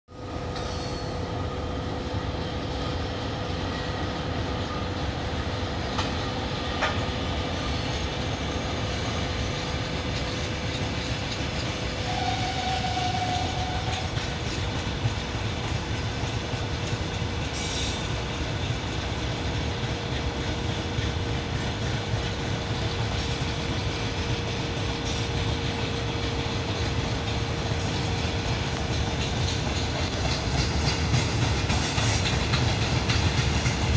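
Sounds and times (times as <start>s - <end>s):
train wheels rumbling on rail: 0.1s - 33.9s
brief squeal: 0.6s - 1.3s
clickety-clack of wheels: 2.4s - 33.9s.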